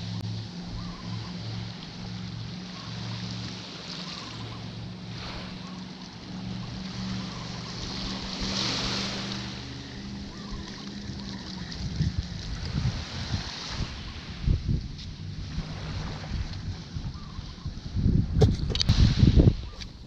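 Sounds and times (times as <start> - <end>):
small waves washing on sand: 0.0 - 17.0
steady low hum: 0.0 - 18.7
wind on microphone: 4.1 - 20.0.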